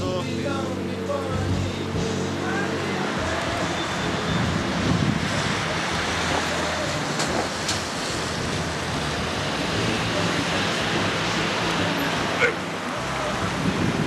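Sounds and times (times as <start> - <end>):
low engine hum: 0.0 - 14.0
wind on microphone: 3.2 - 14.0.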